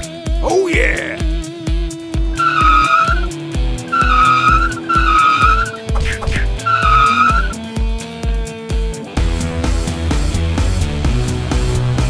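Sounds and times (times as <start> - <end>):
background music with beat: 0.0 - 12.0
tire screech sound effects: 2.3 - 7.7.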